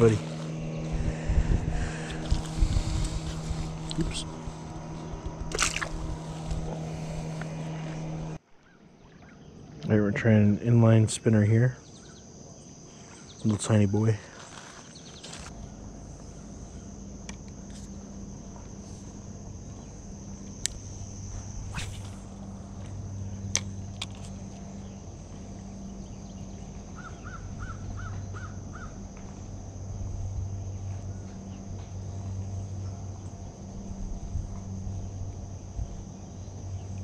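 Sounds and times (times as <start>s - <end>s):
fishing reel whirring: 0.0s - 8.4s, 20.4s - 25.0s
bird calling: 0.0s - 9.8s, 26.0s - 29.0s
insect drone: 0.0s - 37.0s
reel clicks: 23.5s - 24.6s.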